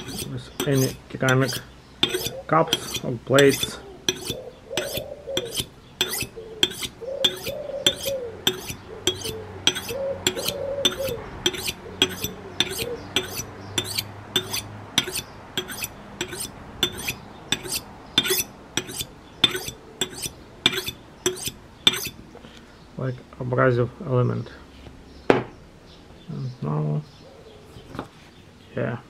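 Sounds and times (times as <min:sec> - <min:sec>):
knife scraping on ceramic: 0:00.0 - 0:22.2.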